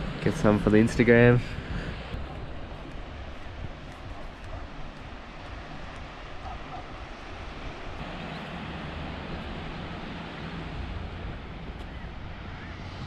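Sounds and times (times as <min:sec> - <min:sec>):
ocean surf: 0:00.0 - 0:13.0
wind noise on microphone: 0:00.0 - 0:13.0.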